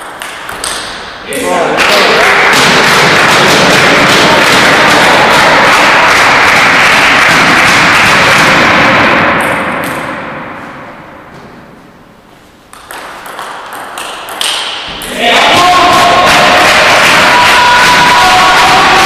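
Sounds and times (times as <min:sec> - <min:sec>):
loud rushing noise: 0:02.1 - 0:12.0, 0:14.9 - 0:19.0
table tennis ball clicks: 0:12.7 - 0:14.9.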